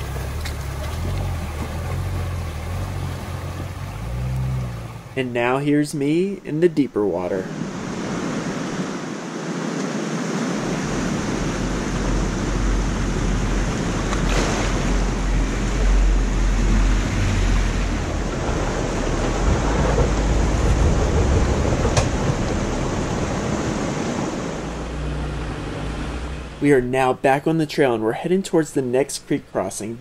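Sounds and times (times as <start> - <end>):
engine rumble: 0.0 - 8.9, 10.7 - 30.0
creek rushing over rocks: 0.0 - 26.7.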